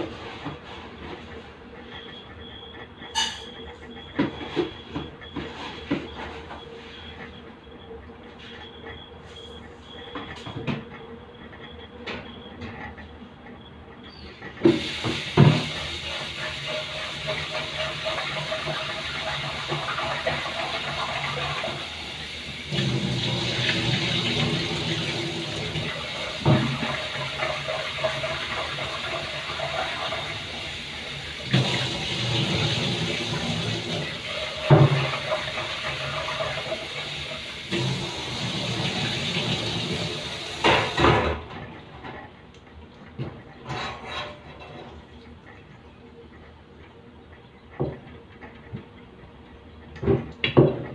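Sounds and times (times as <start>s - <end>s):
tap water running into a sink: 14.6s - 41.3s.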